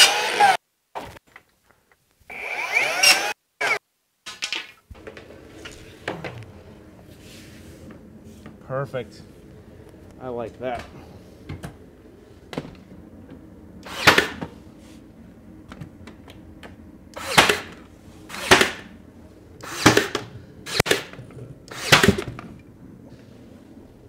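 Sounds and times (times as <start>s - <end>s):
nail gun firing: 13.8s - 14.5s, 17.2s - 18.9s, 19.6s - 22.4s.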